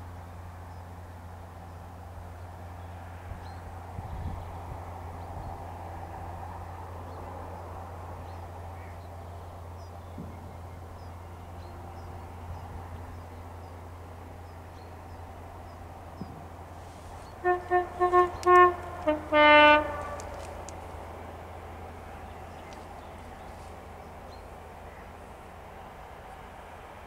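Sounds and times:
faint birdsong: 0.2s - 6.0s, 6.6s - 27.0s
train two-tone horn blasts: 17.4s - 20.7s.

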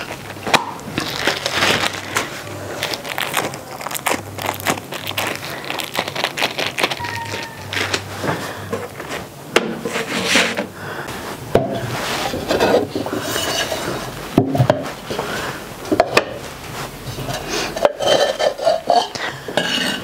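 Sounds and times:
dishes rubbing and scraping: 0.0s - 20.0s
dishes knocking and clattering: 11.5s - 14.9s, 15.9s - 16.4s, 17.1s - 20.0s.

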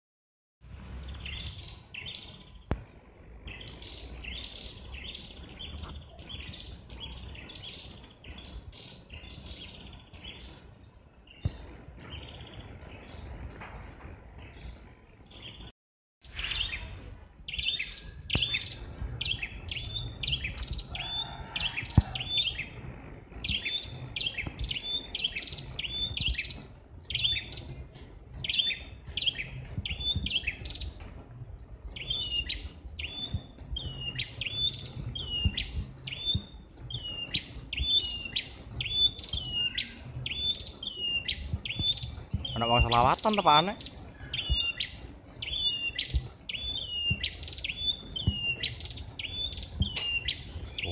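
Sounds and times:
low rumble: 16.3s - 43.1s
bird chirping sharp high notes: 31.9s - 50.9s.

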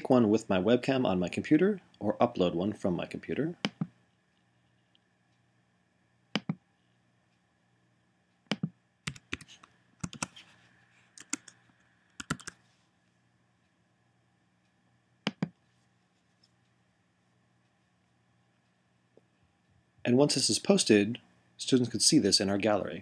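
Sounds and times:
computer mouse clicks: 3.6s - 3.9s, 6.4s - 6.6s, 8.5s - 10.5s, 11.1s - 12.6s, 15.3s - 15.6s
keyboard keystrokes: 8.5s - 10.3s, 12.2s - 12.6s.

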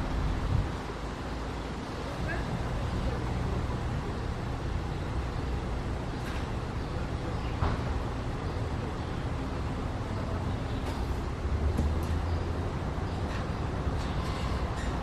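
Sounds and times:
distant road traffic rumble: 0.0s - 15.0s.

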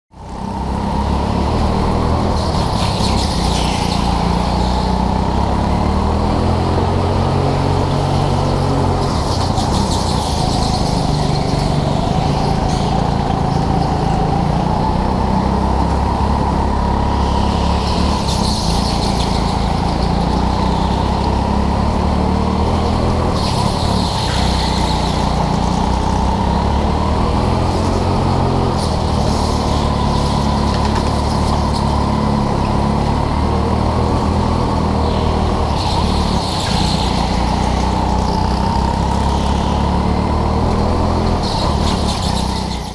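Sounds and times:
go-kart engine revving: 0.2s - 42.9s
tyres squealing: 34.8s - 42.9s.

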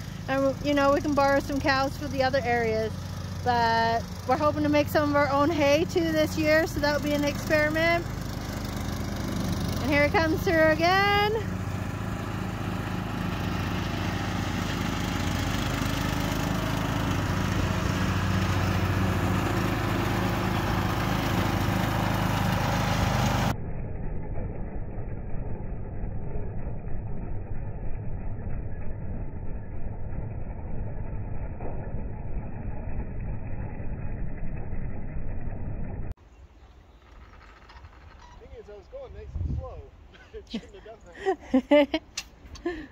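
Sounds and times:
mower blades cutting grass: 0.0s - 23.5s, 36.9s - 39.6s
riding lawn mower engine hum: 0.0s - 42.9s.

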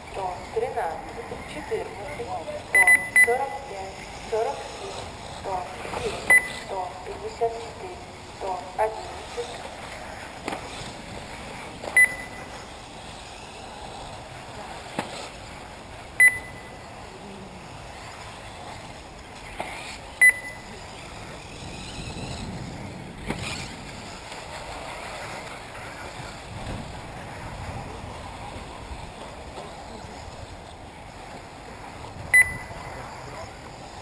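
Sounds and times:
rc car motors and tyres: 0.0s - 34.0s
short loud high beeps: 2.7s - 3.5s, 6.3s - 6.7s, 12.0s - 12.5s, 16.2s - 16.8s, 20.2s - 20.7s, 32.3s - 32.7s.

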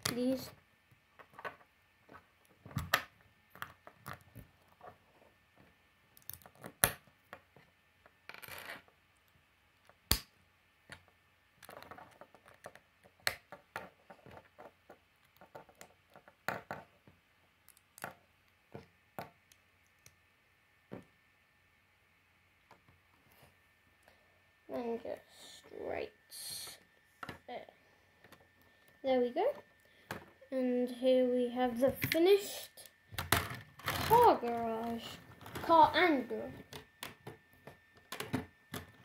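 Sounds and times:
plastic bricks clicking and snapping: 6.1s - 7.1s.

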